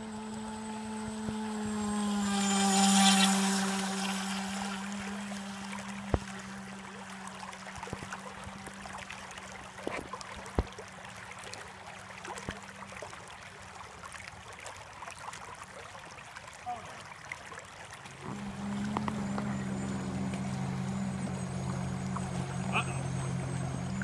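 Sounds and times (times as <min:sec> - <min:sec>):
electric motor hum: 0:00.0 - 0:09.2, 0:18.1 - 0:24.0
creek water flowing: 0:00.0 - 0:24.0.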